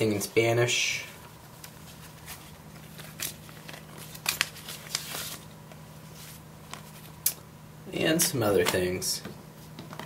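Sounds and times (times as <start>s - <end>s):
steady low hum: 0.0s - 10.0s
paper leaflets rustling: 1.2s - 7.2s.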